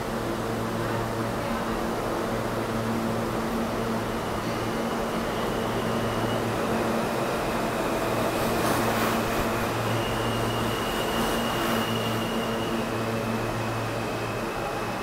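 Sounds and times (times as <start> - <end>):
subway train rumble and hum: 0.0 - 15.0
faint high whine: 4.0 - 15.0.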